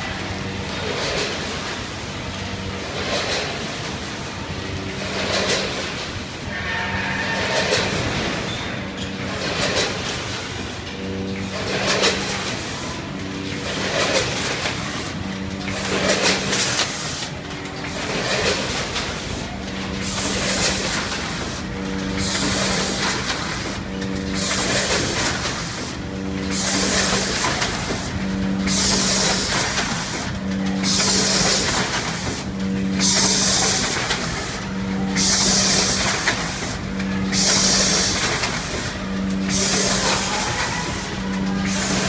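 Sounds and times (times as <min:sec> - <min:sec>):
machine humming: 0:00.0 - 0:42.0
pneumatic cylinders hissing: 0:20.0 - 0:28.1, 0:35.2 - 0:38.9, 0:39.5 - 0:42.0.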